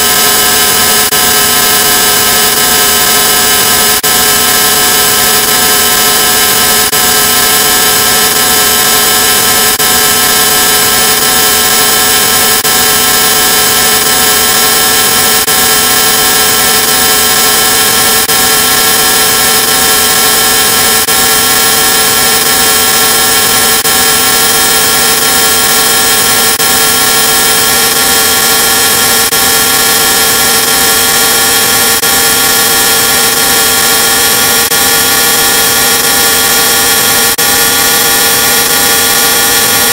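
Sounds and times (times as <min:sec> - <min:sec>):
harsh distorted noise drone: 0:00.0 - 0:39.9.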